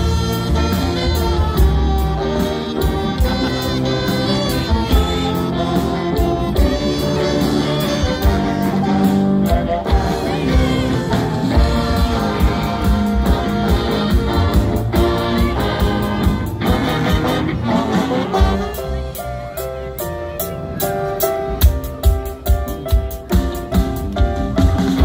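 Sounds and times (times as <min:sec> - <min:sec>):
funk band with horns: 0:00.0 - 0:25.0.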